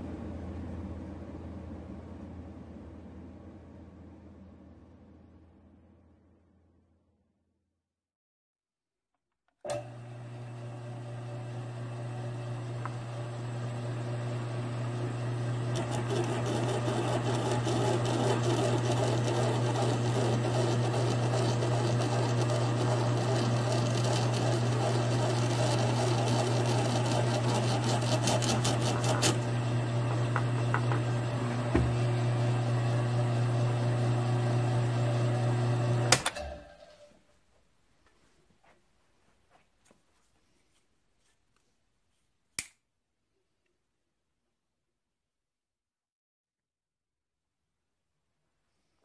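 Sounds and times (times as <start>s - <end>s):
drill press motor running: 9.7s - 37.0s
drill bit cutting brass: 15.7s - 29.5s.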